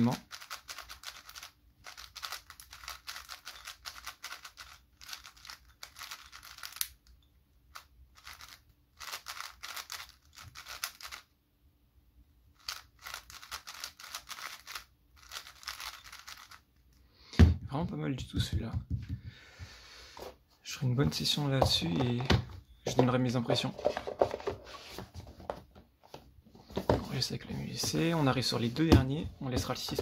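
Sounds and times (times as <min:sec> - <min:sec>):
puzzle cube clicking turns: 0:00.2 - 0:11.3, 0:12.6 - 0:17.0.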